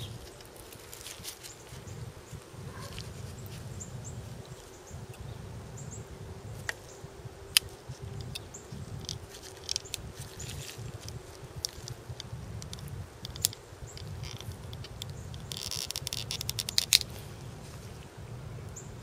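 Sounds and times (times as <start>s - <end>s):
low outdoor rumble: 0.0s - 19.0s
terminal clicking onto battery: 11.0s - 17.1s.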